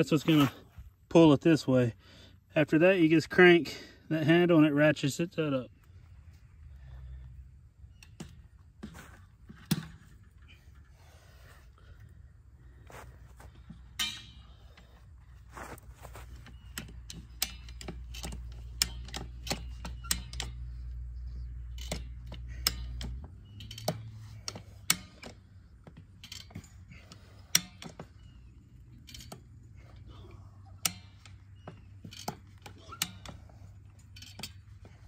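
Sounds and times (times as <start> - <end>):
fence stretcher ratchet clicking: 16.4 - 35.0.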